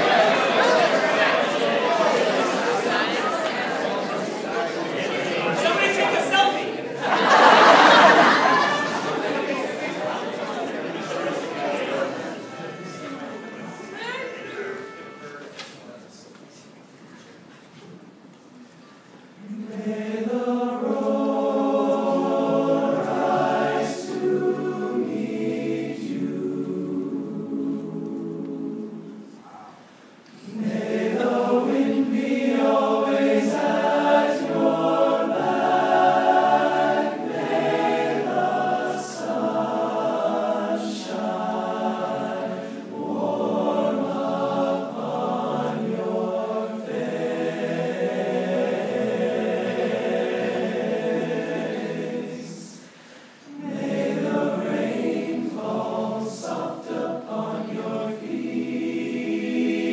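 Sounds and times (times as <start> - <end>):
male a cappella group singing: 19.4 - 29.4, 30.4 - 59.9.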